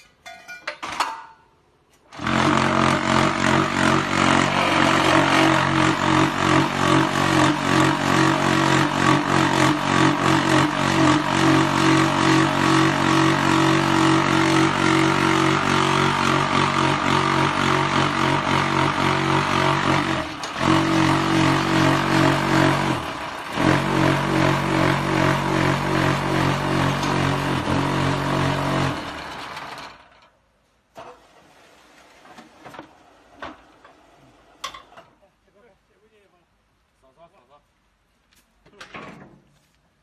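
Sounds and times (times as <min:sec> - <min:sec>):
vibration motor humming and rattling: 0:02.1 - 0:30.4.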